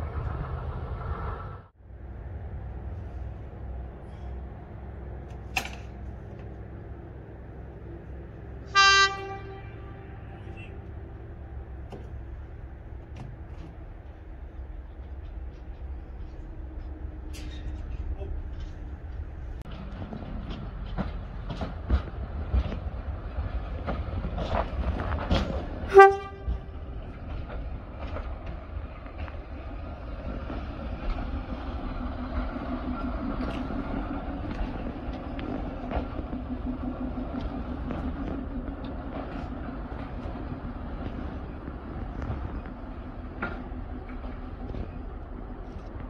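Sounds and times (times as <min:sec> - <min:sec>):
train horn toot: 0:08.7 - 0:10.8, 0:25.8 - 0:26.8
train wheels knocking on rail joints: 0:18.5 - 0:46.0.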